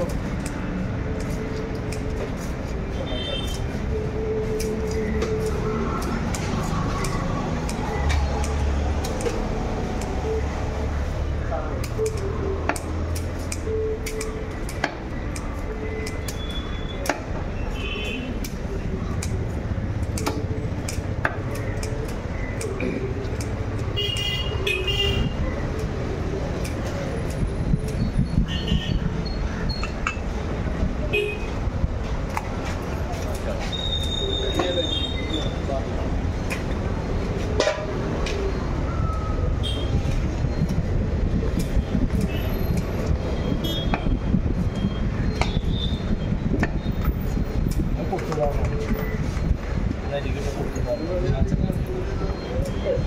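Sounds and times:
low traffic rumble: 0:00.0 - 0:53.0
sharp clicks and knocks: 0:19.2 - 0:24.3, 0:36.3 - 0:38.4.

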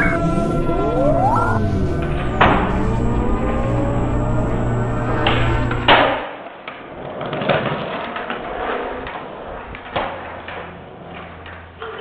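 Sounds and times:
skateboard knocks and clacks: 0:06.6 - 0:12.0
skateboard wheels rolling: 0:06.6 - 0:12.0.

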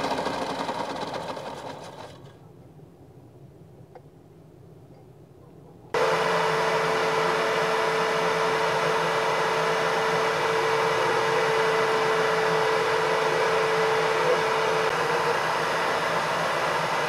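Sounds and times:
electric drill whining: 0:06.0 - 0:17.0.

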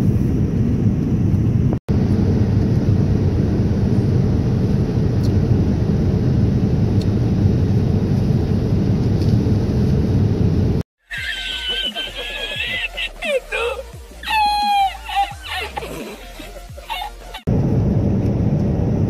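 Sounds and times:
airliner cabin engine rush: 0:00.0 - 0:10.8, 0:17.3 - 0:19.0.

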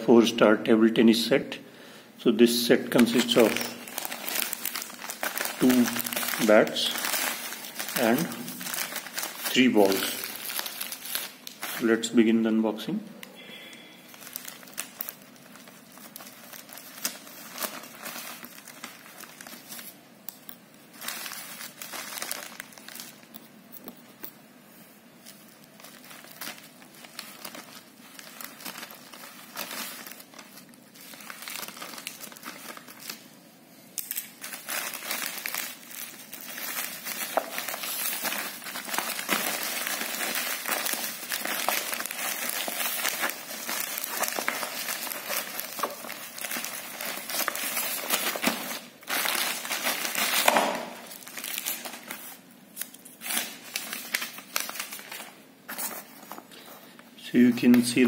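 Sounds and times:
plastic crinkling and rustling: 0:02.9 - 0:58.0
scissors cutting plastic bag: 0:34.0 - 0:52.2.

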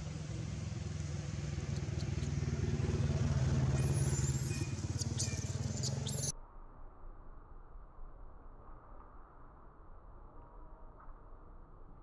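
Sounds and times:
vehicle engine humming: 0:00.0 - 0:06.3
short high squeaks: 0:03.8 - 0:06.3.

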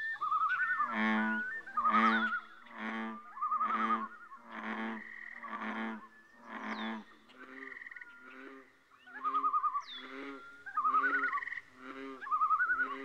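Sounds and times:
falling whistled calls: 0:00.0 - 0:04.4, 0:09.0 - 0:11.6, 0:12.2 - 0:13.0
frogs croaking: 0:00.0 - 0:13.0.

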